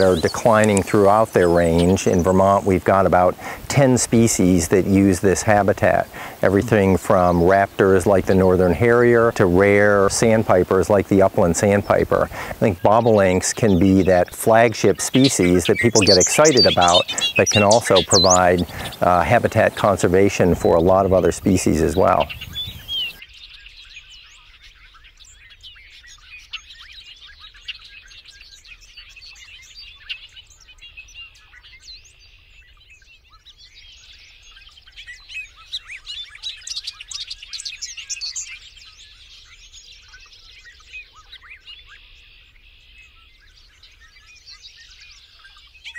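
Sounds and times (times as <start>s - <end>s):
bobolinks singing: 0.0s - 23.2s.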